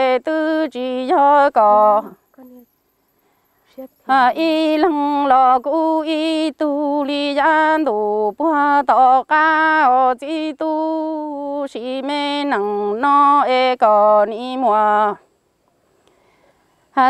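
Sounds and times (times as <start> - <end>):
singer breathing: 16.0 - 16.9.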